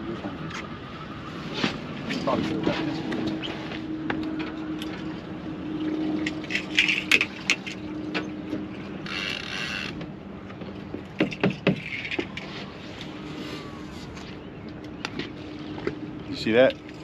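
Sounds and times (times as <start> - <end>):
fishing reel whir: 9.0 - 10.0.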